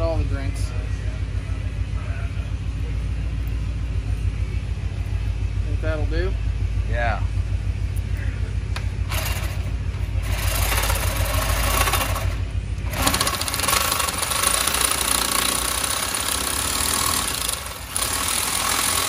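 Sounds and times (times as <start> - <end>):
reciprocating saw cutting steel: 10.2 - 19.0.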